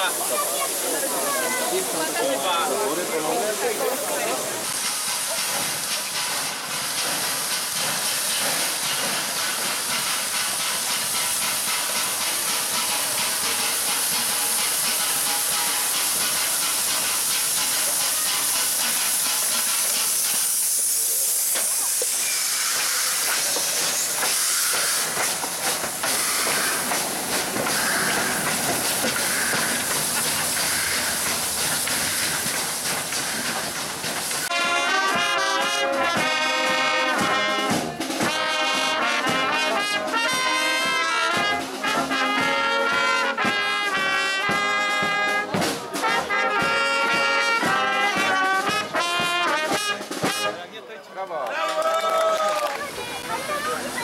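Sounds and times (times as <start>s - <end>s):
steam locomotive hissing: 0.0s - 50.6s, 52.6s - 54.0s
brass band playing: 34.5s - 50.7s.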